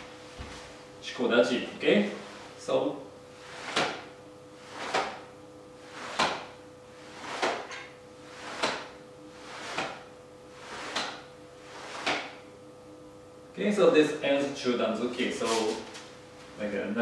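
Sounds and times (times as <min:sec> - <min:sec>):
short swishes of strikes: 0:03.4 - 0:12.4.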